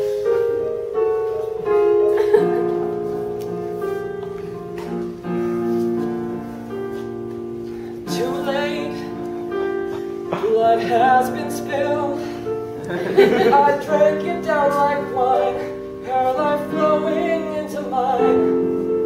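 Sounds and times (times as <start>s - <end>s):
person singing: 8.0s - 19.0s.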